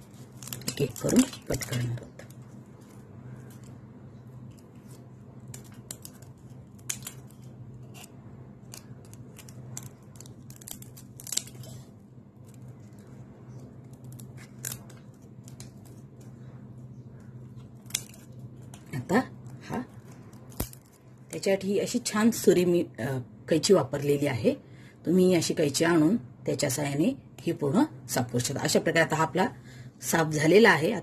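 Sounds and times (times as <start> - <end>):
kitchen scissors snipping: 5.5 - 11.7.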